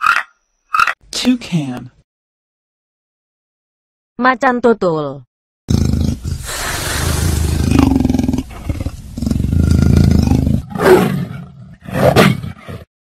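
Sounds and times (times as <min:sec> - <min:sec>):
big cat roaring: 0:05.7 - 0:12.9.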